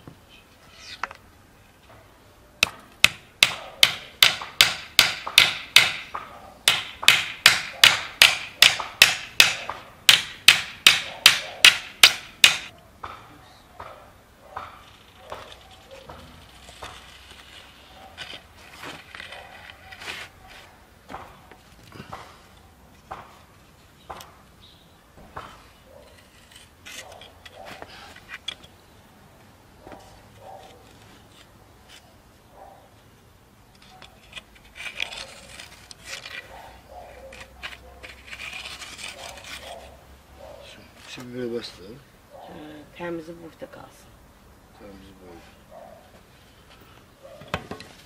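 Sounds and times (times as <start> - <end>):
wooden board scraping on dirt: 14.6 - 22.3, 33.8 - 40.0.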